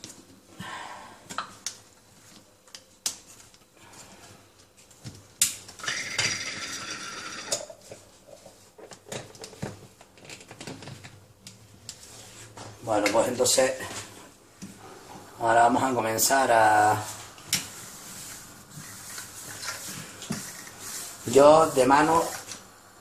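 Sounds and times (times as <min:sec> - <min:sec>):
scrape: 0:17.0 - 0:22.5.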